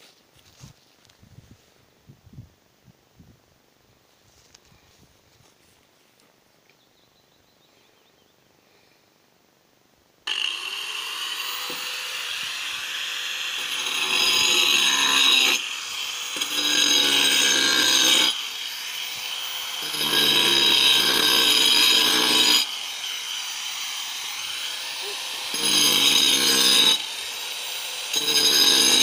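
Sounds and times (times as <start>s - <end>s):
angle grinder cutting slate: 10.3s - 29.0s.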